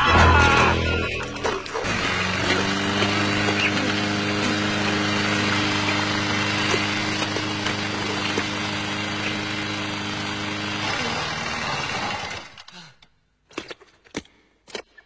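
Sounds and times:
lawn mower engine running: 1.0 - 12.7.

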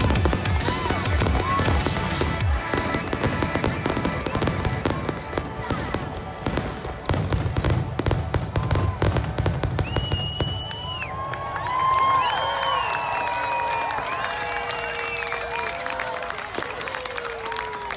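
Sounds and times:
fireworks bangs and crackles: 0.0 - 11.5
crowd whistling: 2.7 - 4.6, 8.6 - 17.9.

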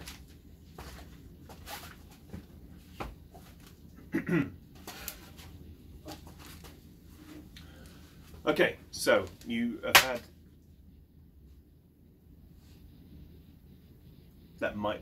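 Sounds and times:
handling noises and light knocks: 0.0 - 3.8, 4.7 - 7.6.

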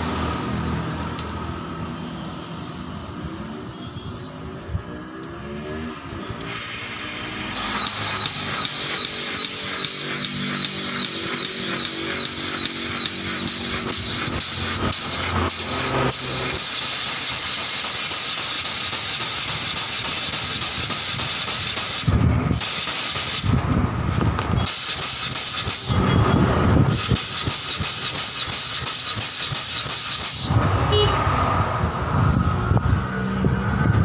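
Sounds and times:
pulsing compressed air hiss: 6.4 - 26.0, 26.8 - 30.6.

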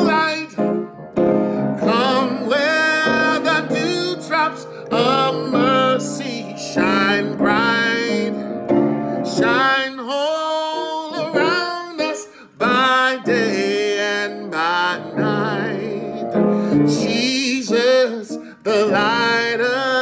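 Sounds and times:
man singing gospel: 0.0 - 0.9, 1.6 - 20.0
instrumental accompaniment: 0.0 - 9.8.

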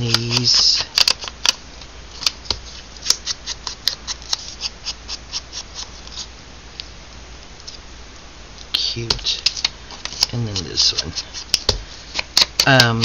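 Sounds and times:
scraping along paper edges: 2.2 - 6.3, 9.2 - 13.0.

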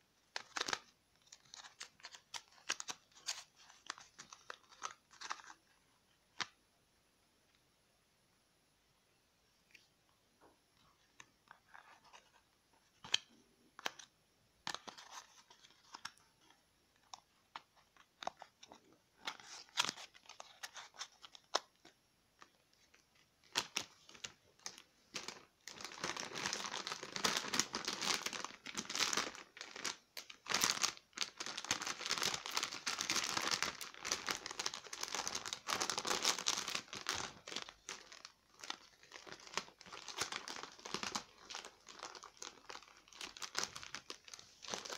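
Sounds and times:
plastic pouches rustling: 0.3 - 5.6, 14.7 - 44.9
plastic film crinkling: 0.3 - 5.7, 14.7 - 44.9.

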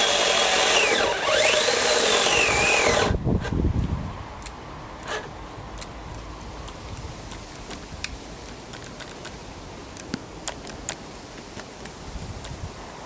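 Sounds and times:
low background noise: 0.0 - 13.0
sharp clicks and ticks: 4.4 - 12.6.

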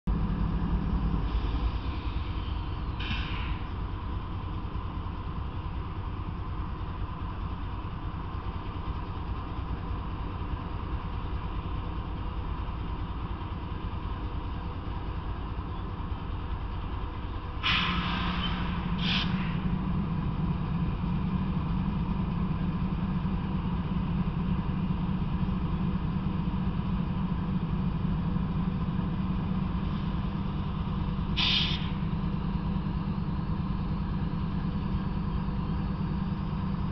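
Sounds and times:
diesel locomotive idling: 0.0 - 36.9
short air hisses: 3.0 - 3.6, 17.6 - 19.6, 31.4 - 32.0.

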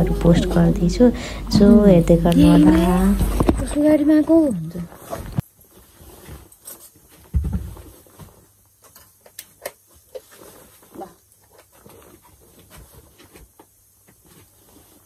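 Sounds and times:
soft rustling: 0.0 - 9.2, 10.1 - 15.0.

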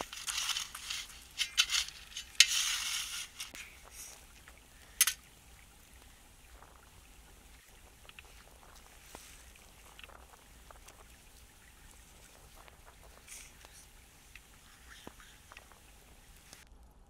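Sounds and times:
stick scraping ashes and stones: 0.0 - 3.9.

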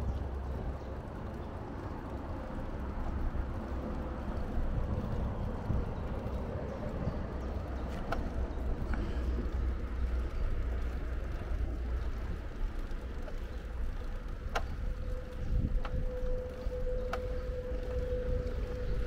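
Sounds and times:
wind and road rumble: 0.0 - 19.0
sharp clicks: 8.0 - 16.0.

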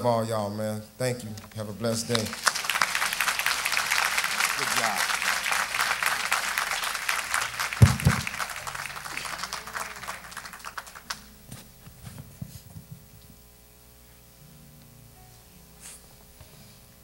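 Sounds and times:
congregation applauding: 1.9 - 11.4
heavy thump: 7.8 - 8.3.

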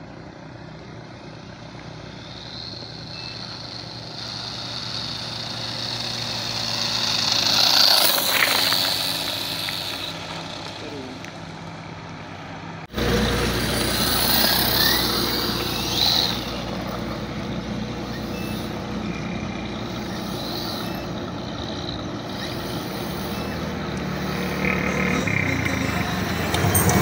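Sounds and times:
low engine hum: 0.0 - 27.0
rc car motor whining: 1.6 - 11.4, 12.9 - 27.0
tyres scattering gravel: 4.2 - 11.4.

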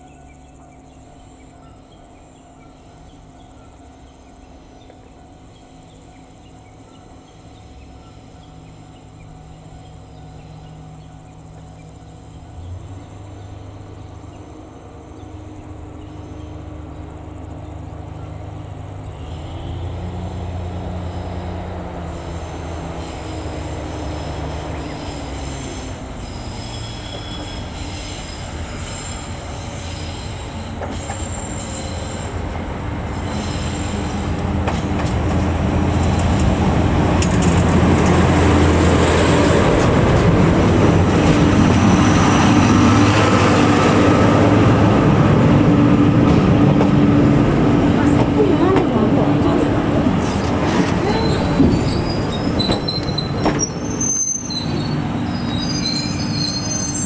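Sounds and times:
diesel locomotive engine: 0.0 - 57.0
train wheels squealing: 19.1 - 34.4, 41.1 - 43.8, 50.2 - 57.0.

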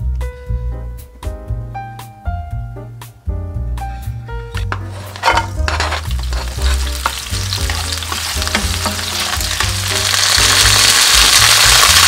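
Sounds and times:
food sizzling in oil: 4.8 - 12.0.

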